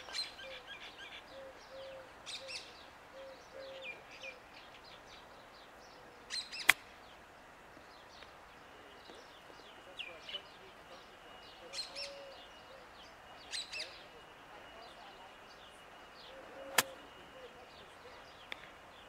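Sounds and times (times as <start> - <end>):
low cooing call: 0.0 - 4.6, 5.9 - 6.7, 8.6 - 18.3
birds chirping: 0.0 - 19.0
golf club striking ball: 16.7 - 17.0.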